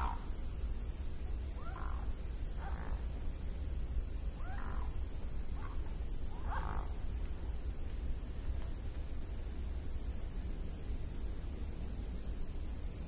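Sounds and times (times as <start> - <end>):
swan calling: 0.0 - 0.3, 1.6 - 3.1, 4.4 - 5.0, 6.4 - 7.0
steady low rumble: 0.0 - 13.0.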